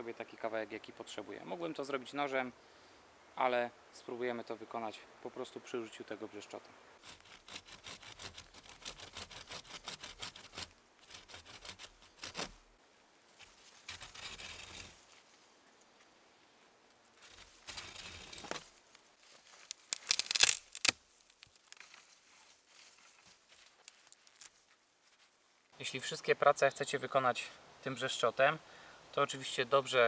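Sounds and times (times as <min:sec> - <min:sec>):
hacksaw sawing through wood: 0:07.0 - 0:12.5.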